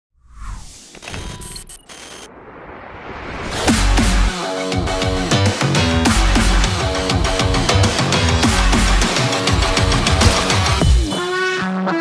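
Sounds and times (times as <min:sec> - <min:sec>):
music with fast beat and heavy bass: 0:03.6 - 0:12.0.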